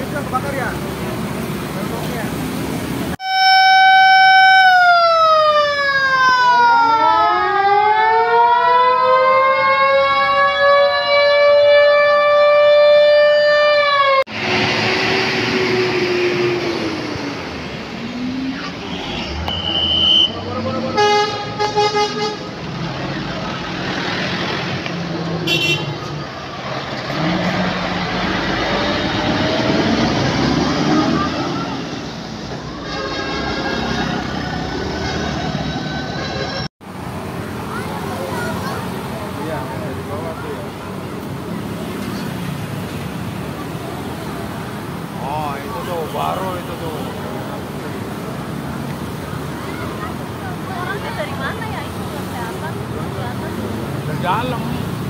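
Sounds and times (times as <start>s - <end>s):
heavy truck diesel engines: 0.0s - 55.0s
fire engine electronic siren: 3.2s - 16.9s.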